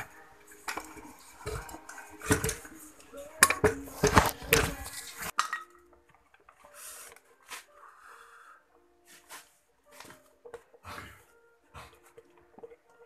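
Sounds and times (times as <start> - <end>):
metal parts and tools clanking: 0.0 - 6.6.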